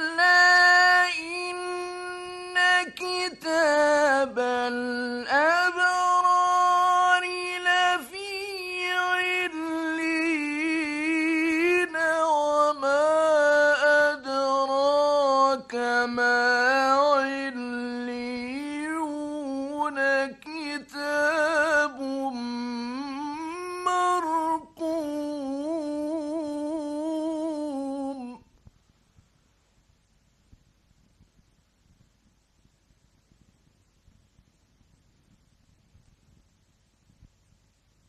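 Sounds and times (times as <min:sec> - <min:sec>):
man reciting melismatic chant: 0:00.0 - 0:28.4.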